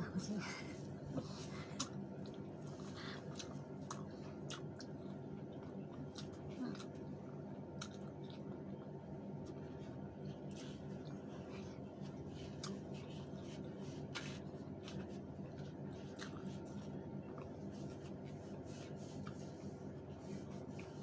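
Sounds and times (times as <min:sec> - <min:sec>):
steady low hum: 0:00.0 - 0:21.0
chewing clicks and smacks: 0:01.8 - 0:02.6, 0:03.2 - 0:09.8, 0:12.5 - 0:12.9, 0:14.8 - 0:17.6.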